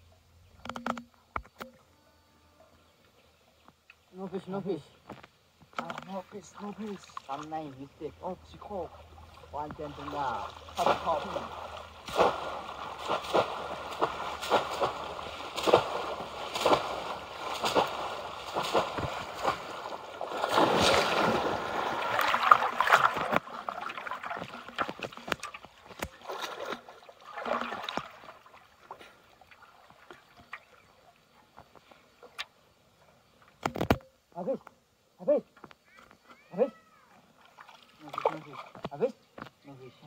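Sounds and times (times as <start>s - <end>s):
water dripping: 5.0s - 32.5s
people wading and splashing: 5.8s - 32.5s, 36.2s - 39.1s
fish traps slammed into water: 10.7s - 23.4s.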